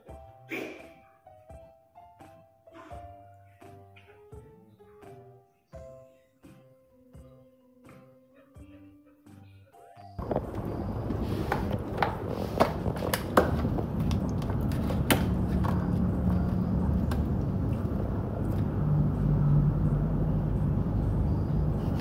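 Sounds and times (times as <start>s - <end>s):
steady low hum: 10.2s - 22.0s.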